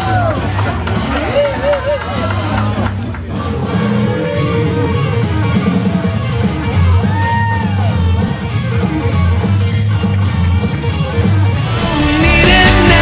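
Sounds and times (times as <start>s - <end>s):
rock music with guitar: 2.7s - 13.0s.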